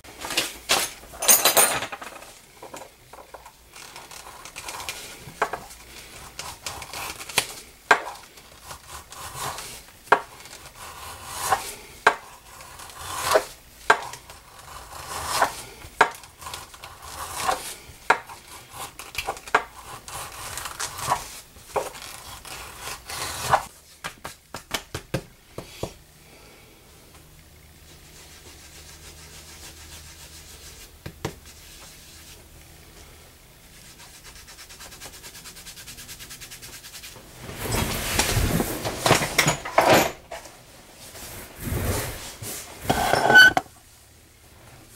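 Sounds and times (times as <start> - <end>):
blade scraping leather: 3.7 - 23.7, 42.8 - 43.7.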